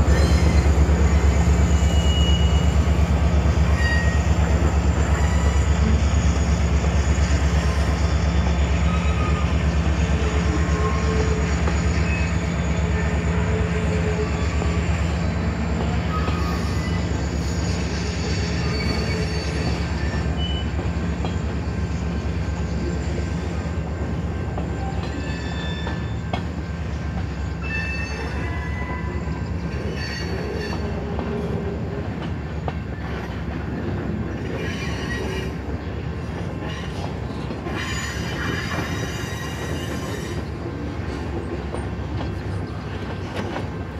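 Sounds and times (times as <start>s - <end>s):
high wheel squeals: 0.0s - 21.4s, 24.8s - 26.4s, 27.4s - 31.0s, 37.7s - 40.5s
steel train wheels rumbling on rail: 0.0s - 43.9s.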